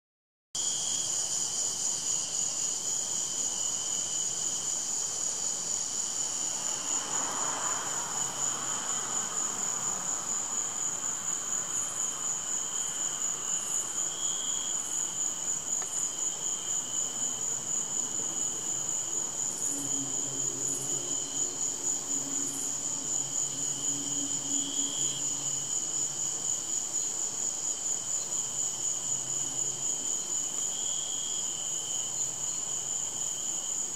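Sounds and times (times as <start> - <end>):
crickets trilling: 0.6 - 33.9
high insect chirps: 0.6 - 33.9
lower insect trill: 0.6 - 33.9.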